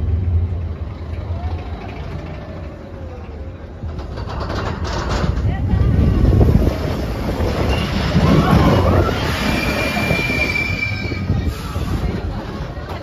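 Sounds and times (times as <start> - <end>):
roller coaster rumbling on track: 0.0 - 13.0
high wheel squeal: 7.4 - 12.2.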